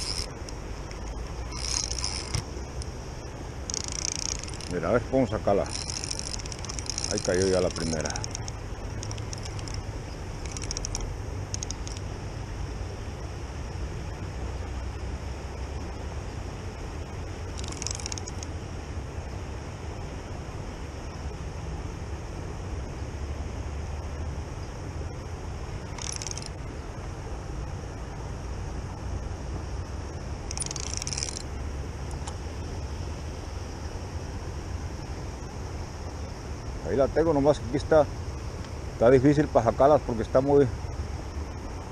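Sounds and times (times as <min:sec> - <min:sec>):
fishing reel ticking: 0:00.0 - 0:03.0, 0:03.6 - 0:12.0, 0:17.5 - 0:18.5, 0:25.9 - 0:26.5, 0:30.5 - 0:31.5
river water rushing: 0:00.0 - 0:13.4
river flowing: 0:00.0 - 0:41.9
wind: 0:00.0 - 0:41.9.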